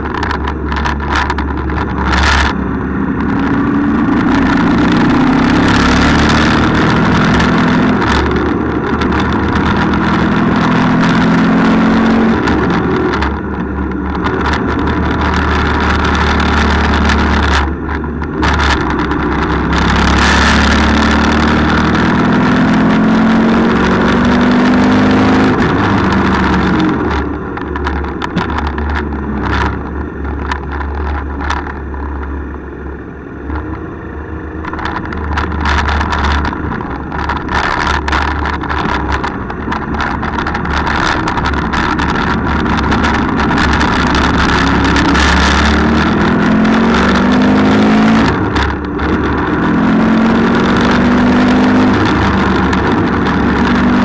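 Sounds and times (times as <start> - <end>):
motorcycle engine running: 0.0 - 54.0
wind on microphone: 34.6 - 54.0.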